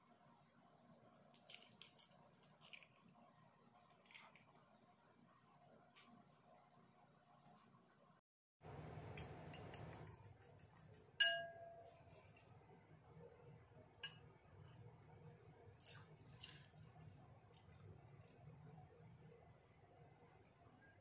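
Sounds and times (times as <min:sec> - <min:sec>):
fork beating egg in bowl: 0:09.5 - 0:12.6
ringing clink of fork on bowl: 0:11.2 - 0:11.9
milk pouring: 0:15.7 - 0:19.0.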